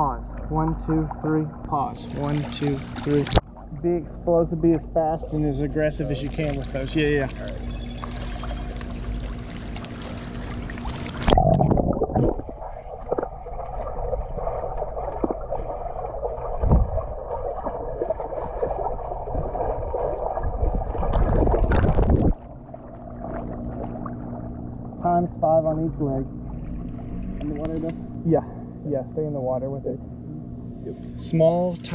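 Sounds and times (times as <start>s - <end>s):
water splashing: 0.2s - 4.0s, 5.1s - 25.1s
muffled underwater rushing and sloshing: 5.1s - 28.2s.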